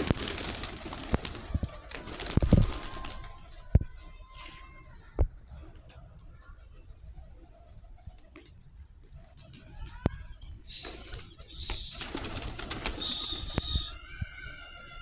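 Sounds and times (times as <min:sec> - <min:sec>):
pigeons cooing: 0:10.6 - 0:15.0.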